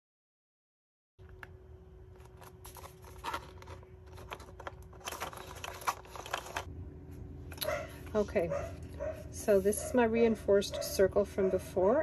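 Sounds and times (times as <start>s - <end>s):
paper clicks and scrapes: 2.2s - 6.7s.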